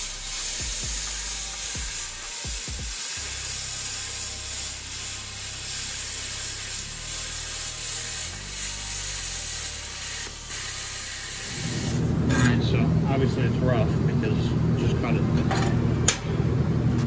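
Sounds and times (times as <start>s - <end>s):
plasma cutter hissing buzz: 0.0s - 12.6s.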